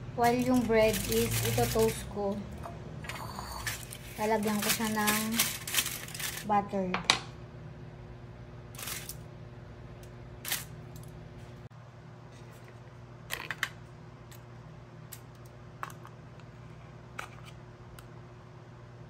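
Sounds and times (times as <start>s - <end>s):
steady low hum: 0.0s - 19.0s
foil rustling: 0.2s - 2.2s, 3.5s - 6.6s, 8.8s - 9.2s.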